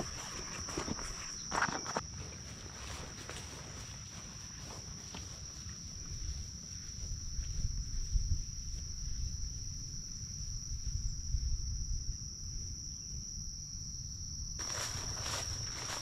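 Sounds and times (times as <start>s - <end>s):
footsteps: 0.0s - 9.3s, 14.6s - 16.0s
insects trilling: 0.0s - 16.0s.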